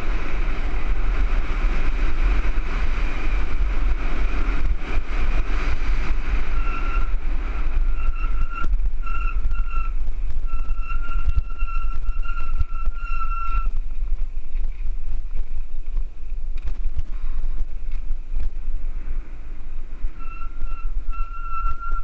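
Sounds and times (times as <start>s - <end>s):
tyre and trail noise: 0.0s - 22.0s
wind buffeting microphone: 0.0s - 22.0s
high pulsing whistle-like squeal: 6.4s - 7.2s, 7.8s - 13.8s, 20.2s - 22.0s.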